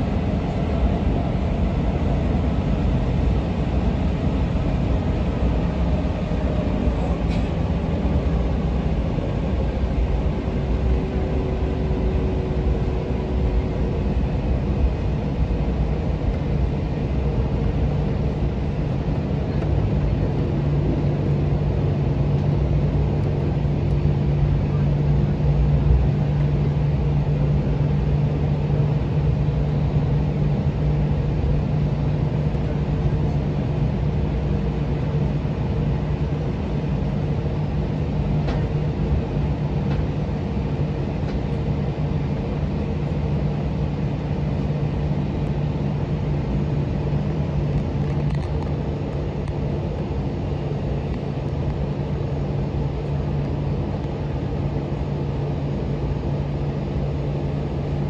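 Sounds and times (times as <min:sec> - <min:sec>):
steady rushing noise: 0:00.0 - 0:25.2
jet engine low hum: 0:00.0 - 0:58.0.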